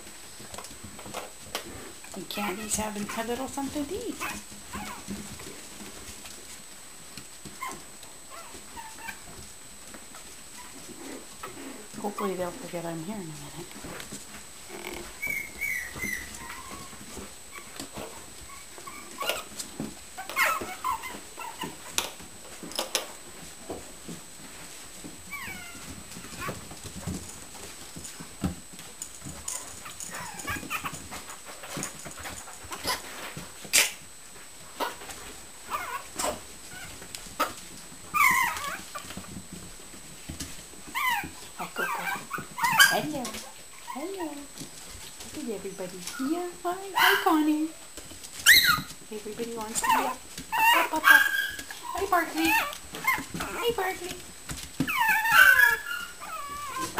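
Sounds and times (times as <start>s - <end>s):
puppies squeaking and yipping: 4.1s - 5.9s, 7.4s - 9.4s, 10.5s - 12.4s, 14.7s - 23.0s, 25.2s - 27.7s, 29.2s - 34.1s, 34.8s - 39.2s, 40.8s - 44.1s, 46.1s - 47.5s, 48.3s - 49.0s, 49.7s - 54.0s, 54.8s - 56.9s.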